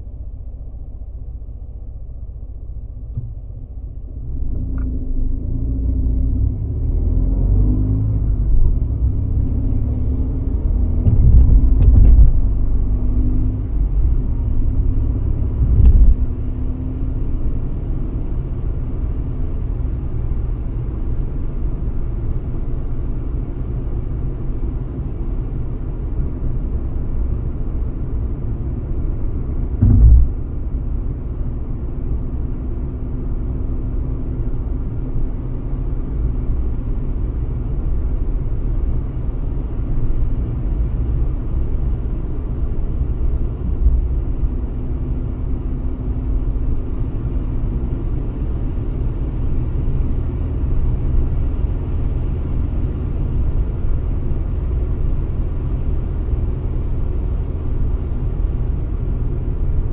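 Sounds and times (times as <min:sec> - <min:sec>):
road and tyre rumble: 0:00.0 - 0:59.9
loud thump: 0:10.9 - 0:12.4, 0:15.6 - 0:16.3, 0:29.8 - 0:30.7.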